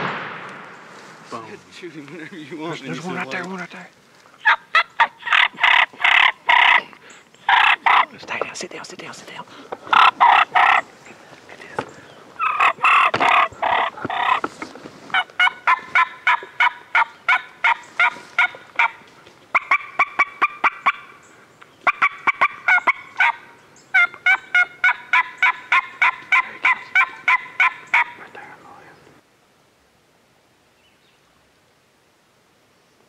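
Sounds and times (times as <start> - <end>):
rapid turkey yelps: 4.4 - 6.8, 7.5 - 8.1, 9.9 - 10.9, 12.4 - 14.4, 15.1 - 21.2, 21.8 - 28.2
turkey gobbles: 4.4 - 8.2, 9.7 - 11.2, 11.8 - 14.4, 15.1 - 21.1, 21.8 - 28.2.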